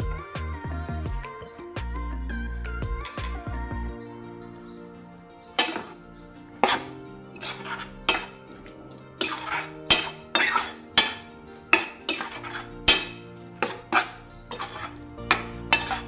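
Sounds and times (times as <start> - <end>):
spoon scraping steel pan: 6.6 - 16.0.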